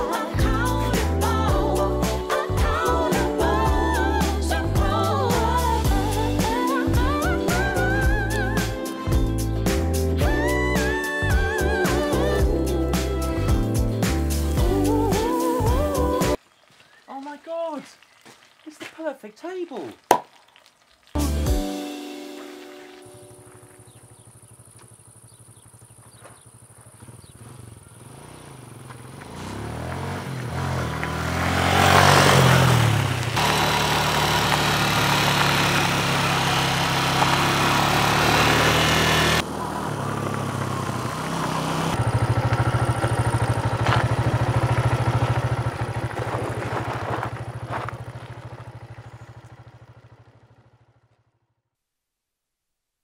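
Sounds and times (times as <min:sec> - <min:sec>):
motorcycle engine revving: 0:23.8 - 0:51.2.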